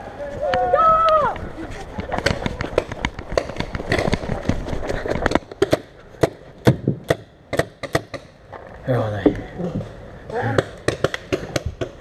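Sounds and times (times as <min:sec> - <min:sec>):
running footsteps on forest floor: 0:00.3 - 0:05.6.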